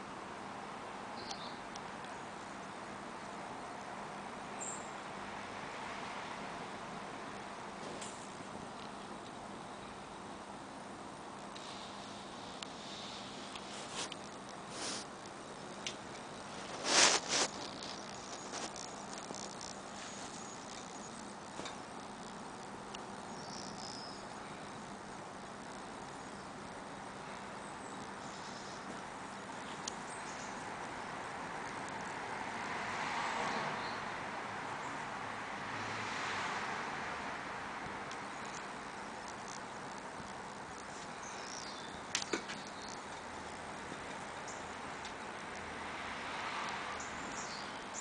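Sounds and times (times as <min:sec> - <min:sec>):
low hum and hiss: 0:00.0 - 0:48.0
faint high chirps: 0:23.2 - 0:24.8
sharp clicks: 0:38.1 - 0:44.3.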